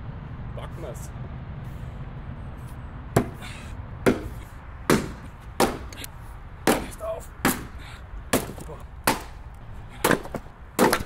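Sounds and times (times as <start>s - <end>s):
axe chopping into log: 3.2s - 3.4s, 4.0s - 11.0s.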